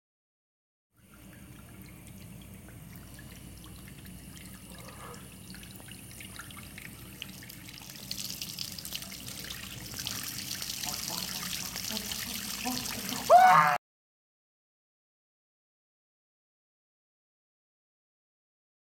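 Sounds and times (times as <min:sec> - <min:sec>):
tap water trickling into basin: 0:01.0 - 0:13.3.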